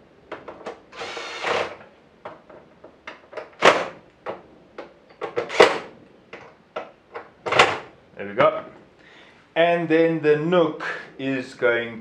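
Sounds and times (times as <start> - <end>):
cordless drill driving screw: 1.0 - 1.8.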